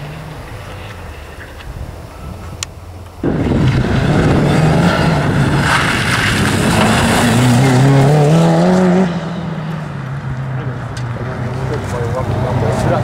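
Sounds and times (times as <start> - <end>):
outdoor background noise: 0.0 - 13.0
rally car engine revving: 3.2 - 13.0.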